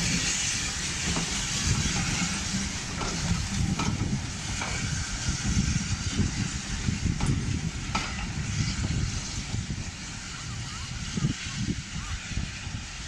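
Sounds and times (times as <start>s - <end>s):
wheels clicking over rail joints: 0.0s - 5.6s, 6.2s - 9.0s
train coaches rumbling past: 0.0s - 13.0s
train hiss: 0.0s - 13.0s.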